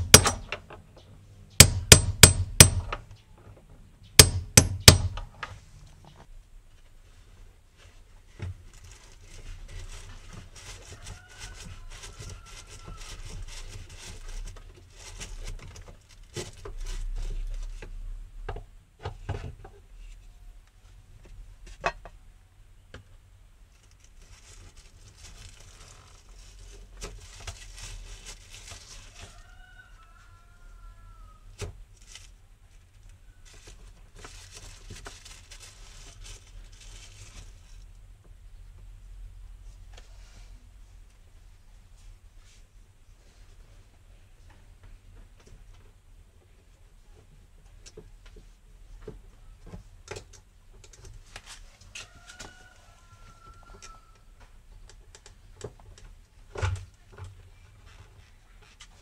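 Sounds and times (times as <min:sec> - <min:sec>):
plastic parts clicking and knocking: 0:00.0 - 0:05.6.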